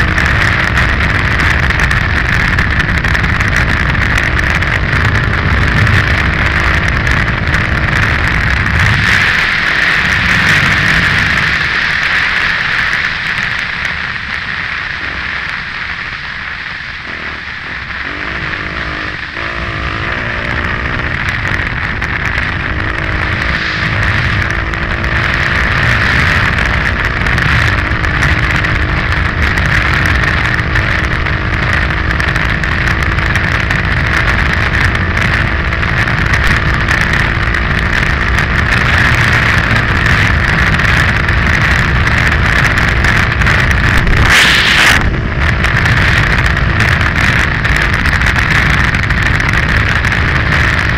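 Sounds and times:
motorcycle engine at speed: 0.0 - 50.9
wind rush on microphone: 0.0 - 50.9
tyre noise: 16.8 - 50.9.

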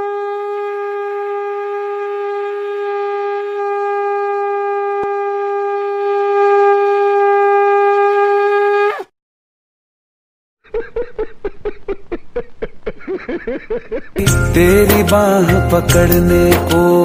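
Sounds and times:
wind instrument long note: 0.0 - 9.1.

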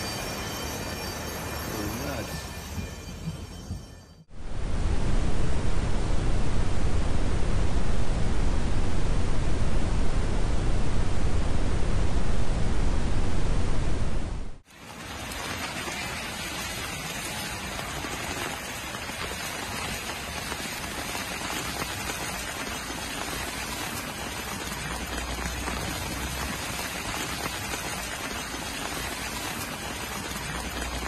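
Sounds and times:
heavy rain on pavement: 14.6 - 31.0
rain splashing: 14.6 - 31.0.

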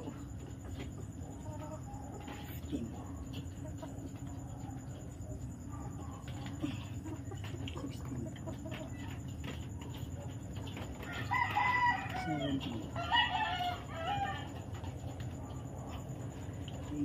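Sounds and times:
low background noise: 0.0 - 17.0
rooster crowing: 11.0 - 14.7.

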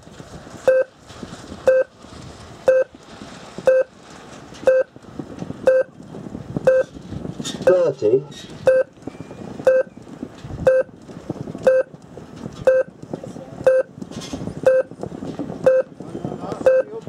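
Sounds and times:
countdown timer beeps: 0.7 - 0.9, 2.7 - 2.9, 3.7 - 3.9, 4.7 - 4.9, 5.7 - 5.9, 6.6 - 6.9, 8.7 - 8.9, 9.6 - 10.0, 10.7 - 10.9, 11.6 - 11.9, 12.7 - 12.9, 13.6 - 13.9, 14.6 - 14.9, 15.6 - 15.9, 16.6 - 16.9.

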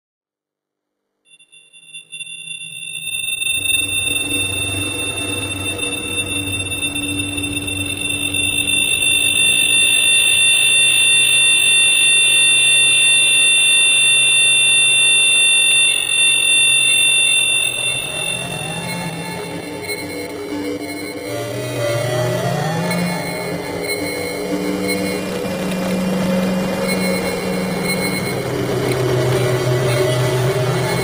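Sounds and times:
high-pitched electronic tones: 1.3 - 31.0
low pulsing drone: 16.2 - 31.0.

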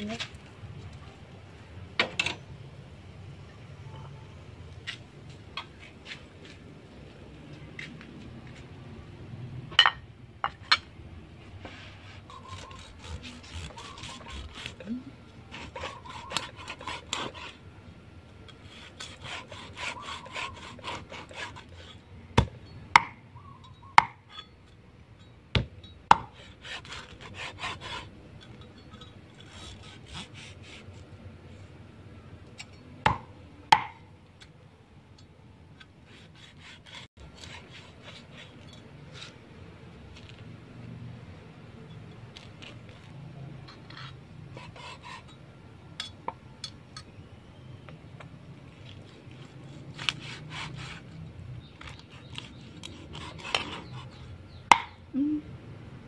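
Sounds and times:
cleaver sawing crisp skin: 12.1 - 17.6, 18.6 - 22.0, 26.4 - 28.1, 29.4 - 31.0, 36.1 - 39.4, 48.9 - 51.2, 51.8 - 54.3.

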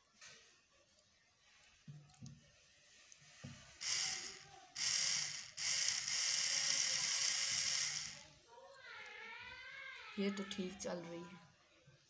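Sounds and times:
toy motor buzzing: 3.8 - 8.3.

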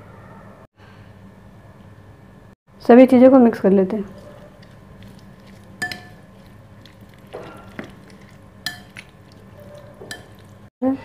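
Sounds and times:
mash squelching and scraping: 4.0 - 10.7
spoon clinking against glass: 5.4 - 6.5, 7.3 - 10.5.

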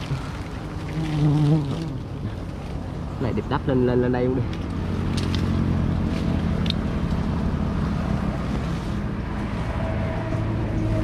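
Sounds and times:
bees buzzing: 0.0 - 2.6.

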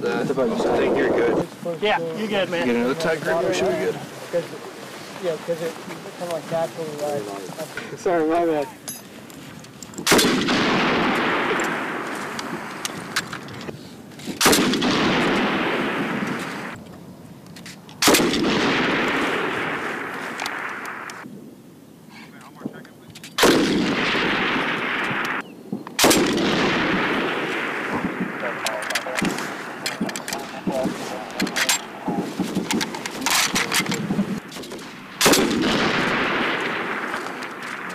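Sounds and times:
machine gun firing with echo: 10.1 - 13.2, 23.4 - 25.4, 26.0 - 37.9
metal clicks of gun handling: 12.4 - 14.4, 16.8 - 18.0, 23.1 - 23.4, 28.9 - 30.5, 32.6 - 34.8
faint sharp cracks: 17.5 - 21.3, 22.8 - 37.9.

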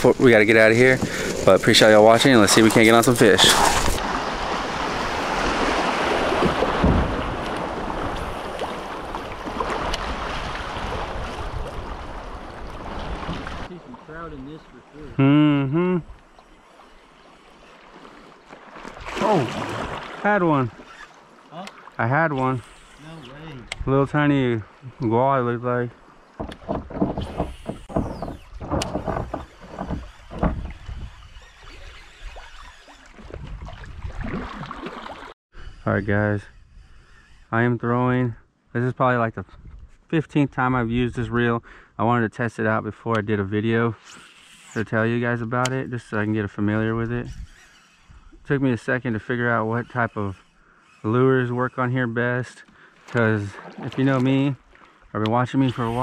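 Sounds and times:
water splashes: 0.0 - 15.2, 16.1 - 35.4, 52.8 - 56.0
river water rushing: 3.5 - 14.1.

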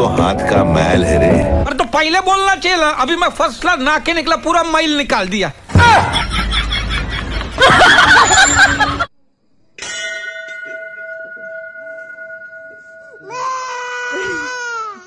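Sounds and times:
sustained bell-like ring: 9.8 - 14.3.

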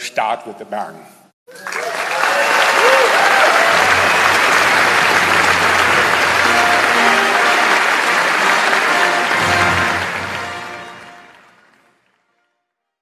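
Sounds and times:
audience applauding: 1.5 - 12.4
music: 3.7 - 13.0.

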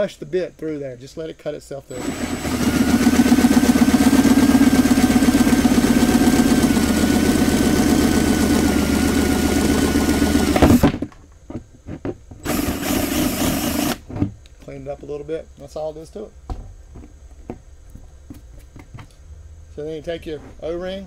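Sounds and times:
cordless drill whining: 1.9 - 10.8, 12.4 - 14.0.

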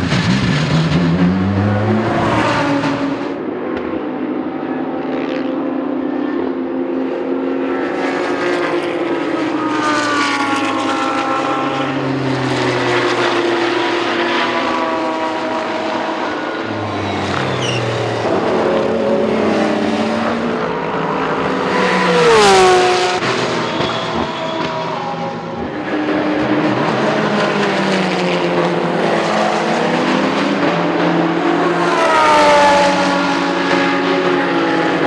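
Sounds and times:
race car engines: 0.0 - 35.0
race car passing by: 7.1 - 35.0.

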